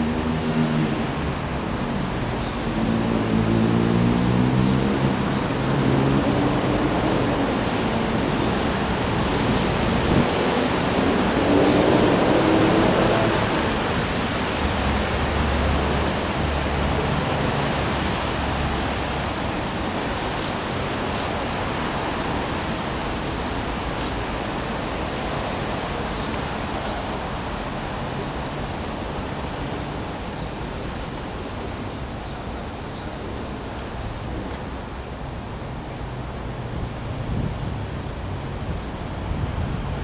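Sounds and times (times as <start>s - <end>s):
train rumbling past: 0.0s - 20.5s.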